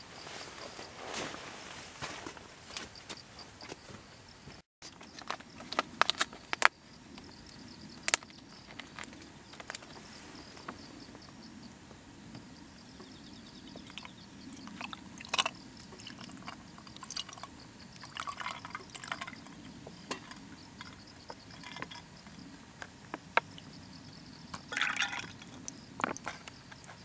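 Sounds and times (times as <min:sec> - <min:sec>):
wine poured over ice: 0:14.7 - 0:19.4, 0:24.7 - 0:25.7.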